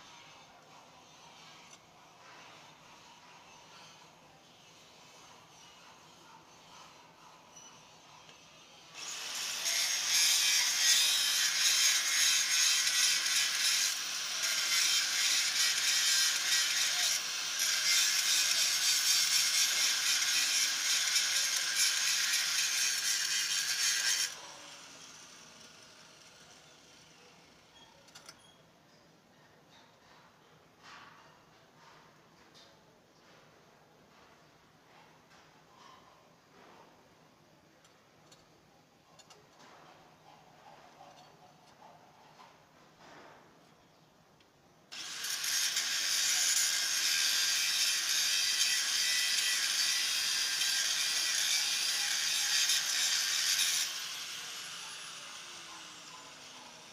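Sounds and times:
grinder grinding steel: 0:04.7 - 0:27.8, 0:44.9 - 0:56.9.

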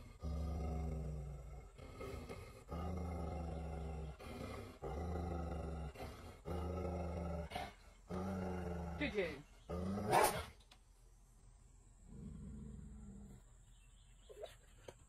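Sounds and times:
dog growling low: 0:00.0 - 0:10.5, 0:12.0 - 0:13.7.

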